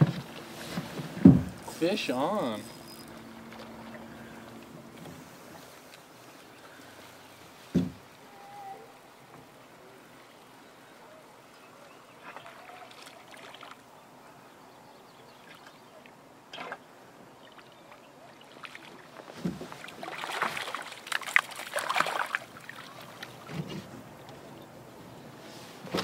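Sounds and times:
fish splashing in water: 19.8s - 23.4s.

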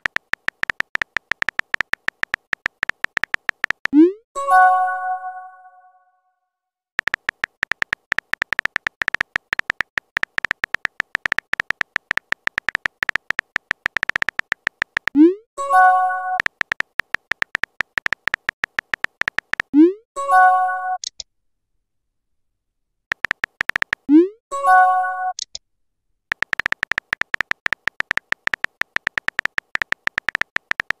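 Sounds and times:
keyboard tap clicks: 0.0s - 4.0s, 7.0s - 15.2s, 16.4s - 19.7s, 23.1s - 24.1s, 26.3s - 31.0s.

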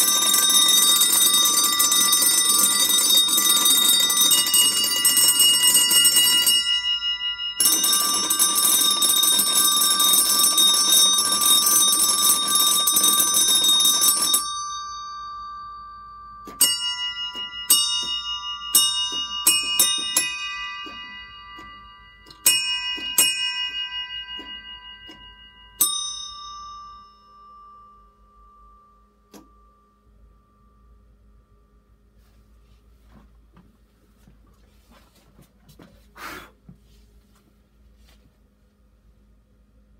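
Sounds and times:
metal bells ringing: 0.0s - 29.9s.

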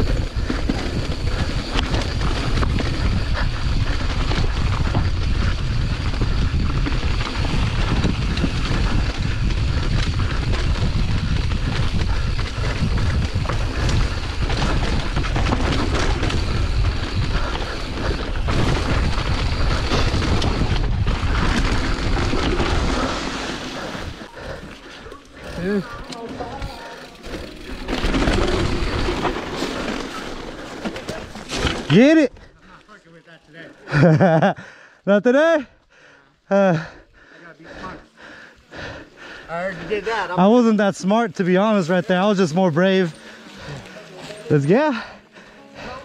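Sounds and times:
wind buffeting microphone: 0.0s - 29.4s
mountain bike rumbling on dirt: 0.0s - 34.8s, 36.5s - 46.0s
bike rattles and clicks: 0.0s - 34.9s, 35.8s - 46.0s.

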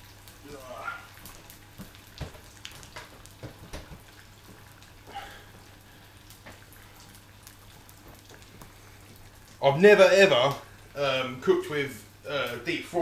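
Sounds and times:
chicken frying in hot oil: 0.0s - 13.0s
oil crackling and popping: 0.0s - 13.0s.

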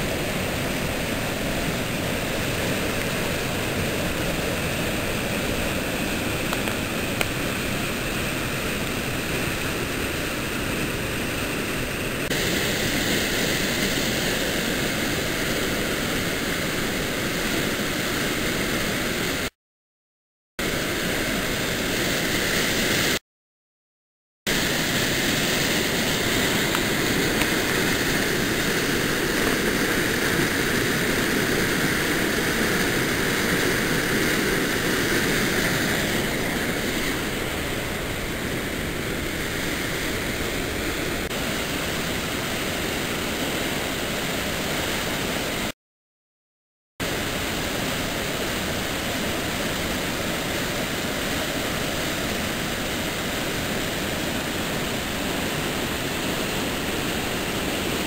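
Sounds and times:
waterfall rushing: 0.0s - 19.5s, 24.5s - 45.7s, 47.0s - 58.0s.

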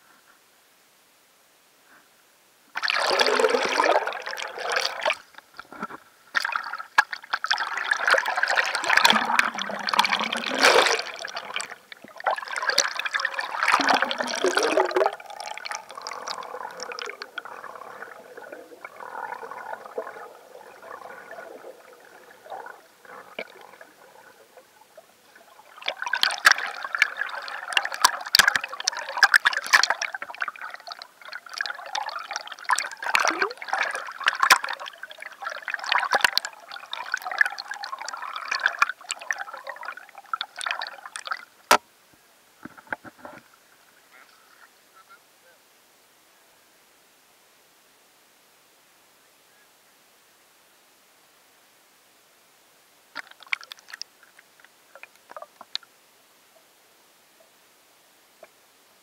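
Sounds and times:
water sloshing and gurgling: 2.8s - 41.6s, 53.2s - 55.8s.

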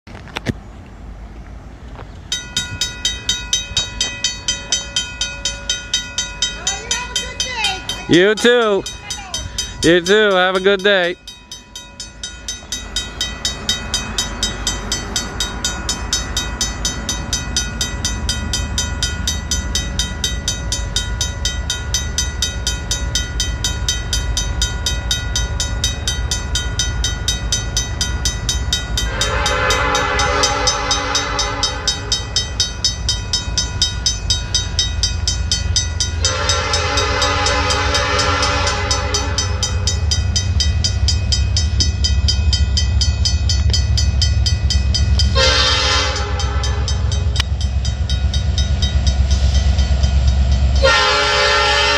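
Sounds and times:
locomotive engine rumble: 0.0s - 51.9s
level crossing bell ringing: 2.3s - 51.2s
locomotive horn blasts: 29.0s - 32.3s, 36.1s - 39.9s, 45.2s - 47.4s, 50.8s - 51.9s.

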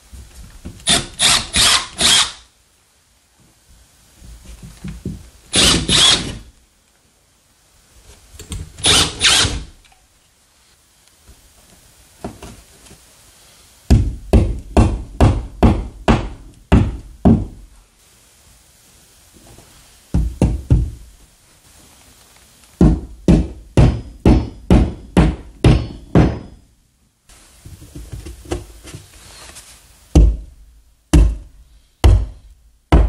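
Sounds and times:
cordless drill boring into drywall: 0.9s - 2.4s, 5.5s - 6.5s, 8.8s - 9.7s.

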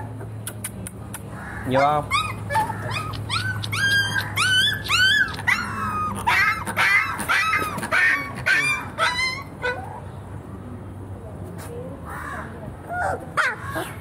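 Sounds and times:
puppy yelping: 1.5s - 10.0s, 12.9s - 14.0s.

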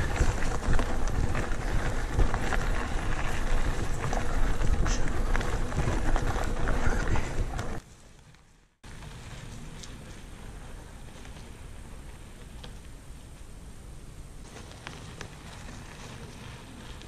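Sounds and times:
wind on microphone: 0.0s - 7.8s
tyres crunching on gravel: 0.0s - 7.9s
bike rattling: 0.0s - 13.4s, 14.4s - 17.0s.

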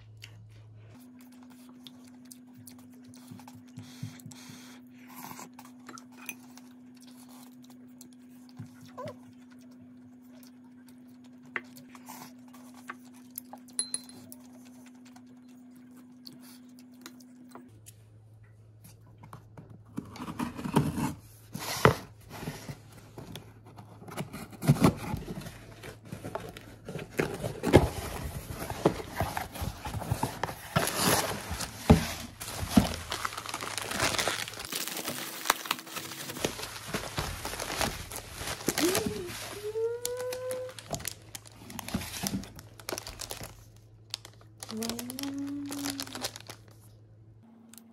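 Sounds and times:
low steady hum: 0.0s - 47.9s
packaging crinkling and rustling: 22.3s - 46.9s.

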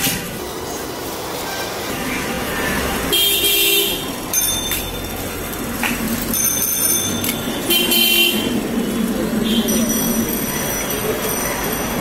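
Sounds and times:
street traffic: 0.0s - 12.0s
vehicle horn honking: 3.1s - 4.1s, 7.7s - 8.6s
low engine rumble: 3.9s - 12.0s.

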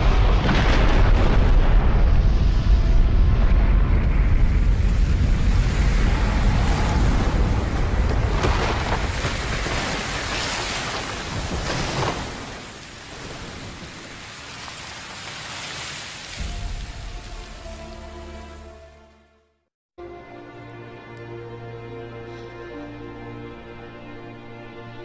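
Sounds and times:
deep rumble: 0.0s - 10.2s
rushing noise: 0.0s - 11.2s.

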